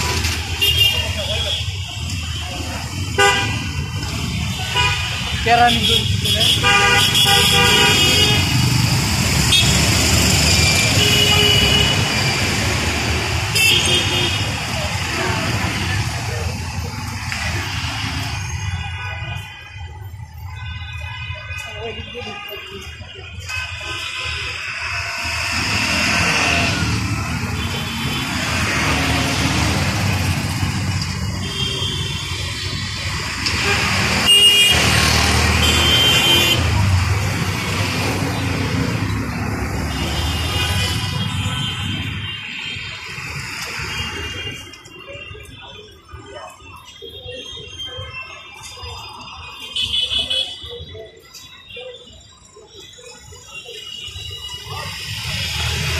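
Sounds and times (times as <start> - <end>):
road traffic rumble: 0.0 - 55.9
vehicle horn: 3.1 - 3.7, 4.6 - 8.6, 10.6 - 12.1, 13.5 - 14.6, 31.4 - 32.4, 33.5 - 36.8.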